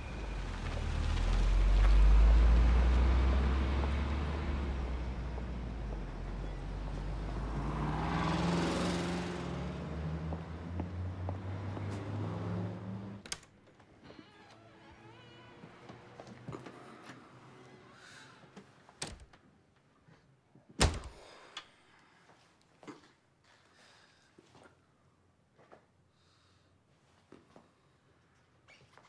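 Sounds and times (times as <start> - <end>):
car driving past: 0.0 - 13.2
car engine rumble: 0.0 - 13.2.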